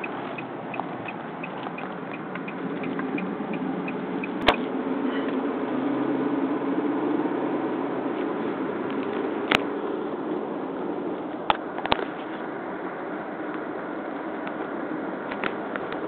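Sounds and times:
turn signal ticking: 0:00.0 - 0:04.6
car engine and road noise: 0:00.0 - 0:16.0.

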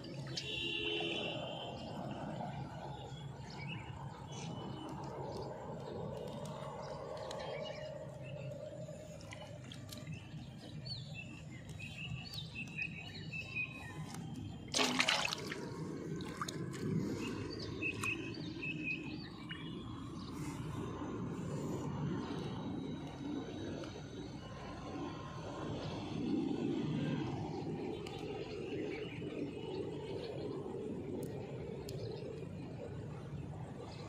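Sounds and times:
low outdoor background: 0:00.0 - 0:34.0
small birds chirping: 0:03.1 - 0:21.0
loud bump or splash: 0:14.7 - 0:15.6.

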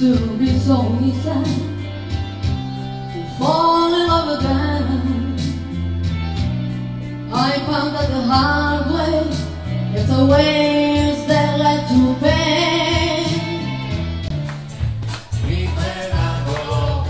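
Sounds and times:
woman singing into a microphone: 0:00.0 - 0:02.4, 0:03.0 - 0:06.0, 0:07.3 - 0:14.3
electronic keyboard music with beat: 0:00.0 - 0:17.0.

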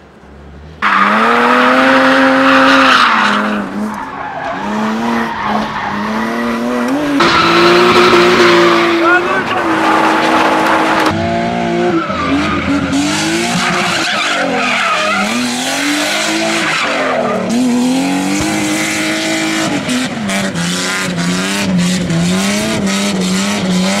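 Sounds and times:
tyres skidding and squealing: 0:00.6 - 0:24.0
car engine revving: 0:00.8 - 0:24.0.

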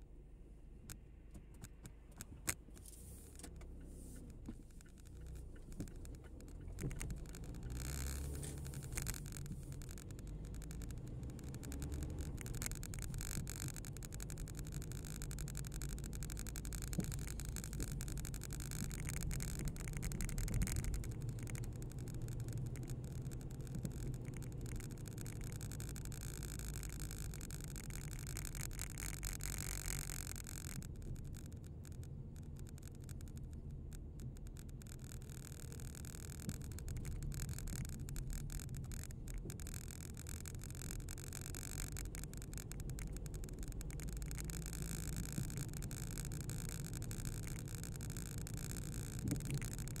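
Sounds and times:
car engine and tyre rumble: 0:00.0 - 0:50.0
small clicks and rattles: 0:00.8 - 0:50.0
short hiss: 0:02.7 - 0:04.8.

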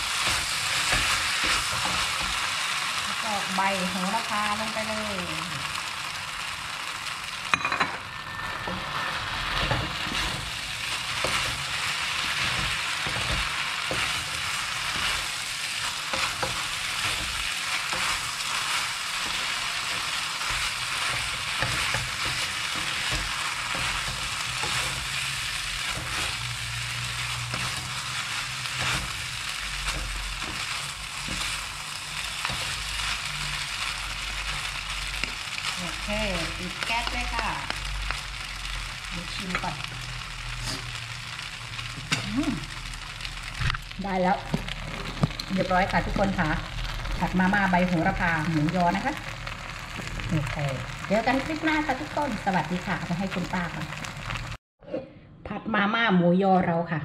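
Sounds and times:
noodles sizzling in a hot pan: 0:00.0 - 0:54.6.

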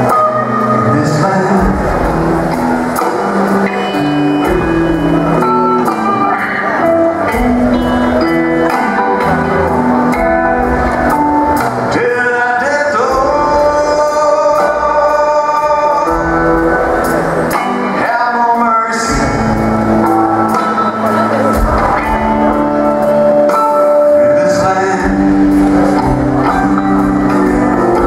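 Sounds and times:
man singing: 0:00.0 - 0:02.8, 0:11.4 - 0:28.0
rock band playing blues: 0:00.0 - 0:28.0.

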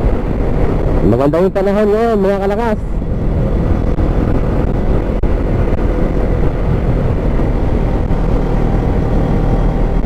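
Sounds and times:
wind noise on microphone: 0:00.0 - 0:10.0
motorcycle engine running: 0:02.8 - 0:10.0.

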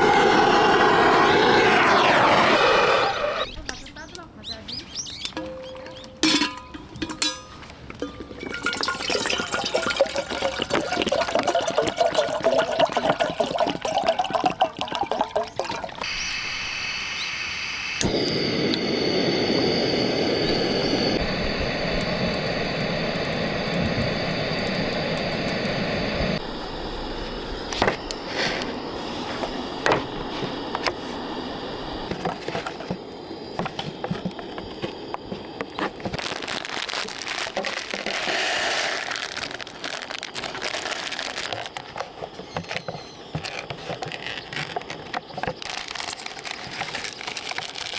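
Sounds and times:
gas stove hissing: 0:00.0 - 0:04.1, 0:16.0 - 0:36.5
water pouring into kettle: 0:08.4 - 0:16.1
paper lid crinkling: 0:35.7 - 0:47.9.

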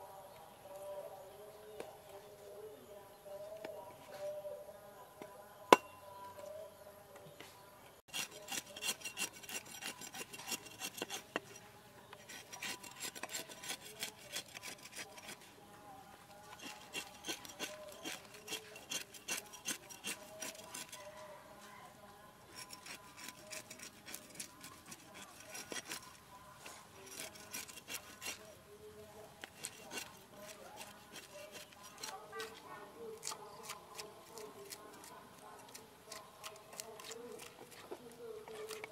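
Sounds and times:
cleaver scraping fish scales: 0:08.1 - 0:15.5, 0:16.5 - 0:21.2, 0:22.5 - 0:28.6, 0:29.3 - 0:38.9.

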